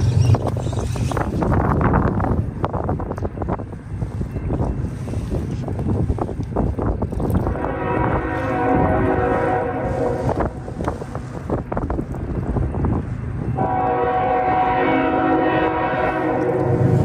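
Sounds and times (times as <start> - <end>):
multi-tone horn blast: 7.5 - 10.6, 13.6 - 17.0.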